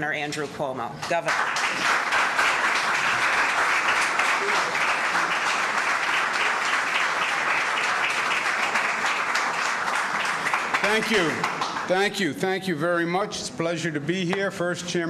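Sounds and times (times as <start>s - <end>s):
audience applauding: 1.1s - 12.2s.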